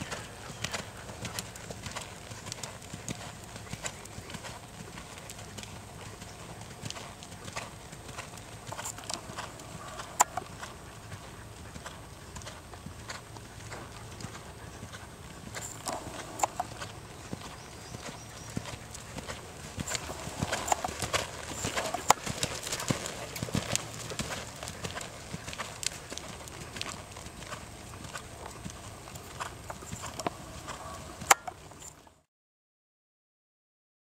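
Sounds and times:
horse hoofbeats on sand: 0:00.0 - 0:32.1.

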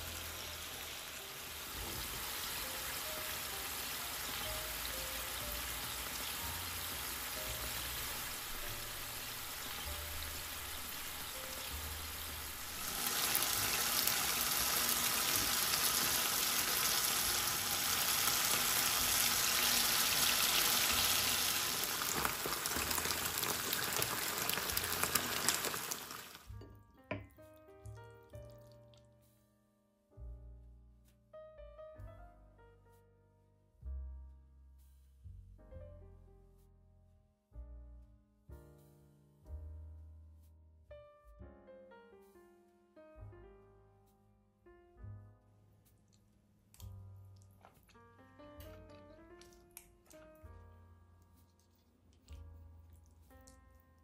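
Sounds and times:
sauce sizzling in a frying pan: 0:00.0 - 0:26.6
soft piano music: 0:00.0 - 0:54.0
soft piano chord: 0:01.2 - 0:13.0.

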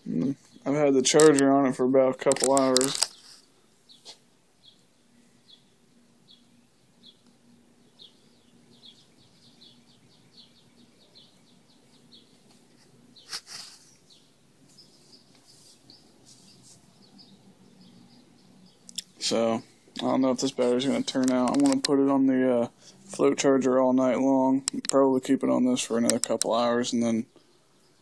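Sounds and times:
faint low hum: 0:00.0 - 0:28.0
bird chirping faintly: 0:02.5 - 0:22.2.

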